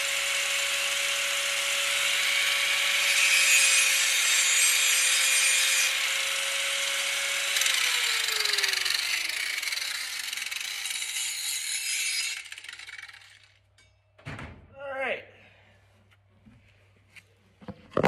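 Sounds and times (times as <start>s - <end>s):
angle grinder grinding steel: 0.0s - 13.9s.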